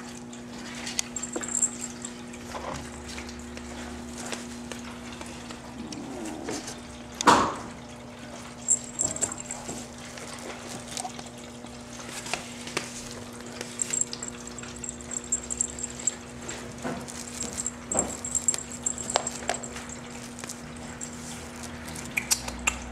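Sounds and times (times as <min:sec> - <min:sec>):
kitten claws scratching wood: 0:12.0 - 0:22.6.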